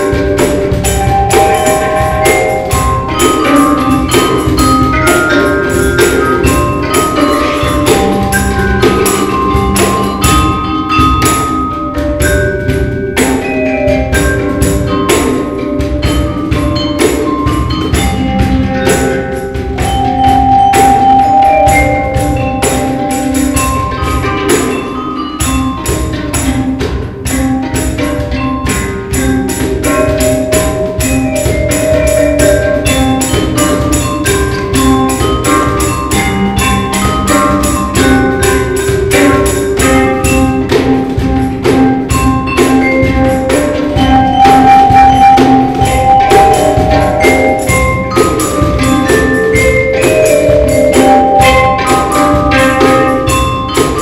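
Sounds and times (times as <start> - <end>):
cajon drum strokes: 0.0 - 54.0
handpan melody: 0.0 - 54.0
tambourine jingling: 0.0 - 54.0
vibraphone notes: 0.0 - 54.0.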